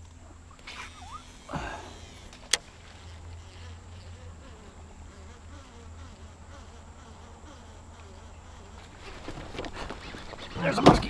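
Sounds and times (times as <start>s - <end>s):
reel buzzing: 0.5s - 10.8s.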